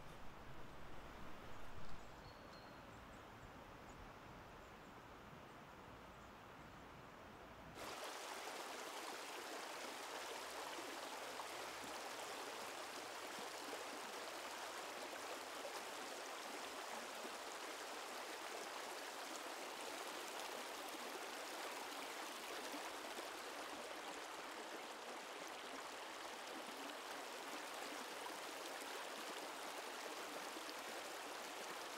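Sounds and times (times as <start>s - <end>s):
stony stream flowing: 7.8s - 31.9s.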